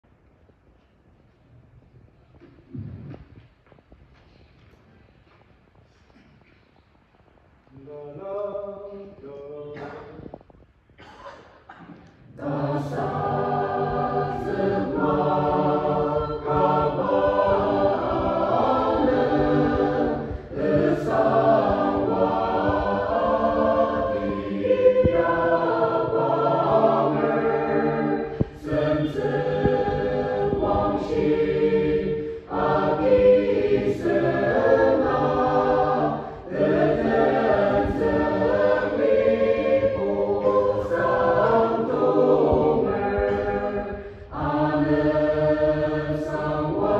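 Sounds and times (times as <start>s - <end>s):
mixed choir singing a hymn: 12.3s - 46.9s.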